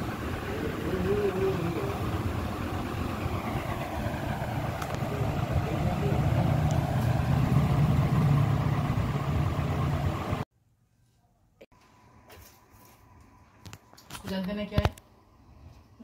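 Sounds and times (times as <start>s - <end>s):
low rumbling noise: 0.0s - 10.4s.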